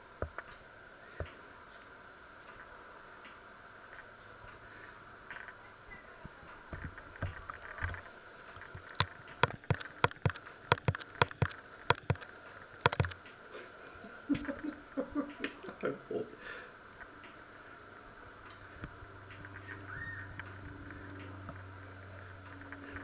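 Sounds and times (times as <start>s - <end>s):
sharp irregular clicks: 6.5s - 13.4s.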